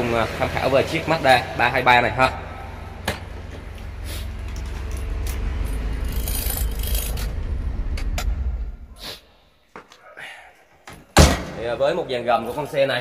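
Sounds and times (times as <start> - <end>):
low rumble: 3.8 - 9.0.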